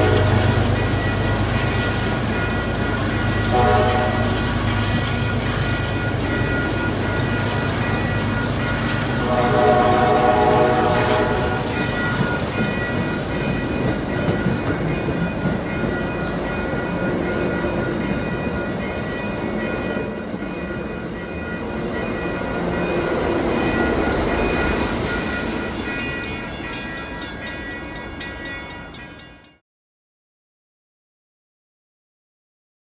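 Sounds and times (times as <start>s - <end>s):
train horn: 0.0s - 0.8s, 3.5s - 4.6s, 9.1s - 11.8s
train wheels rumbling and clattering: 0.0s - 29.0s
high ringing: 10.0s - 29.6s.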